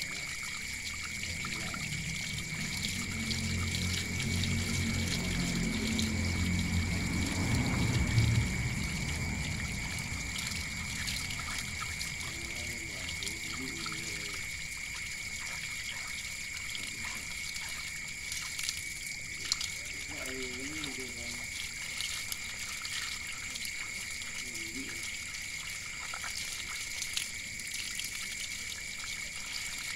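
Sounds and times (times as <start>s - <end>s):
water trickling onto concrete: 0.0s - 29.9s.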